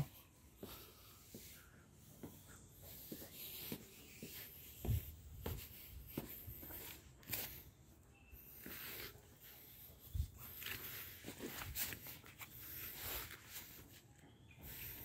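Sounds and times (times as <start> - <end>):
footsteps on steps and pavement: 0.0 - 15.0.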